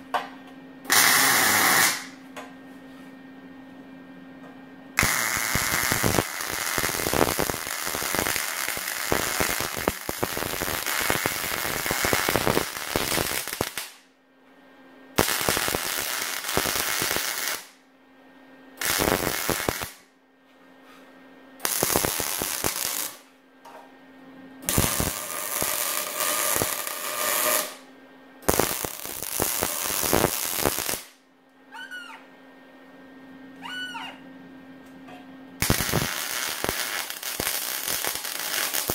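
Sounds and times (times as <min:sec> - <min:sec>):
arc welding crackling sizzle: 0:00.9 - 0:02.2, 0:05.0 - 0:14.0, 0:15.2 - 0:17.8, 0:18.8 - 0:20.0, 0:21.6 - 0:23.3, 0:24.6 - 0:27.8, 0:28.4 - 0:31.2, 0:35.6 - 0:38.9.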